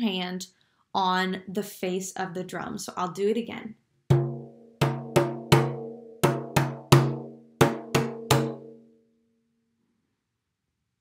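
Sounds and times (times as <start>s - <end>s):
hand drum hollow thuds: 4.1s - 8.7s.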